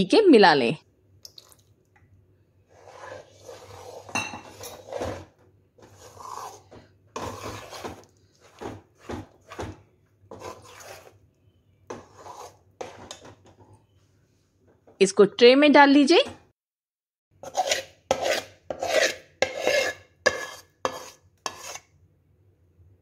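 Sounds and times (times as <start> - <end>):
metal spoon scraping pan: 2.7 - 11.2, 11.9 - 13.8, 17.4 - 21.9.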